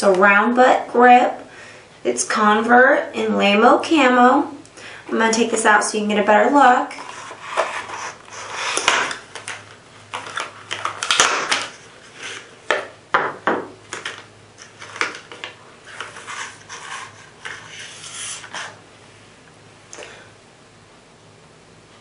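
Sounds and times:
plastic blister pack crackling: 7.1 - 12.5, 13.9 - 17.0.

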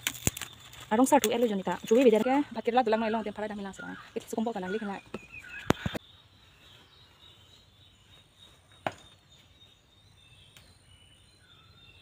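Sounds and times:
sharp click of picking vegetables: 0.0 - 2.0
insect calls: 0.0 - 12.0
bird calls: 0.1 - 12.0.

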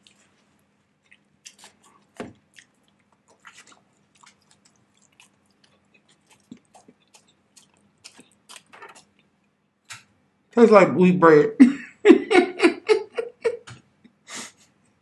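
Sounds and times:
person chewing bread: 0.0 - 10.1.

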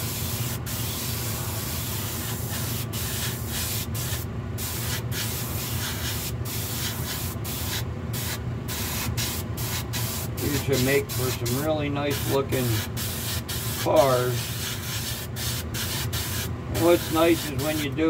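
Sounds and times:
spray gun hissing: 0.0 - 18.0
steady low hum: 0.0 - 18.0.

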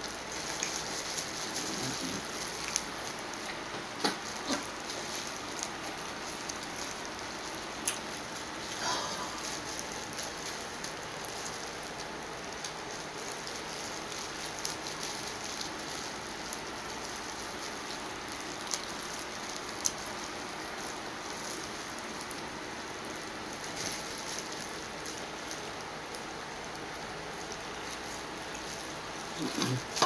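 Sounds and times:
shellfish peeling crackles: 0.0 - 30.0
steady hiss: 0.0 - 30.0.

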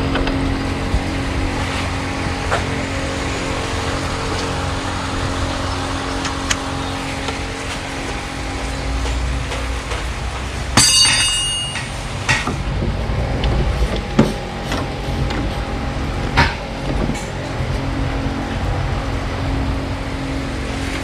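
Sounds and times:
sharp metallic clack: 10.8 - 12.6.

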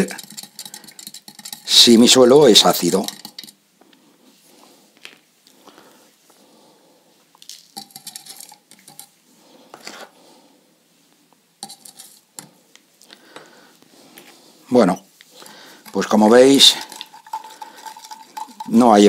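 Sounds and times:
spoon clinking against glass: 0.0 - 1.9, 2.8 - 3.6, 7.8 - 9.1, 15.9 - 18.9.

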